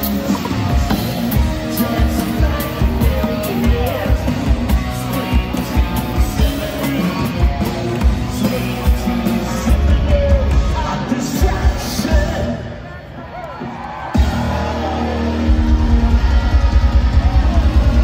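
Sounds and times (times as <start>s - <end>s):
drum kit beat: 0.0s - 12.6s
electric guitar: 0.0s - 12.7s.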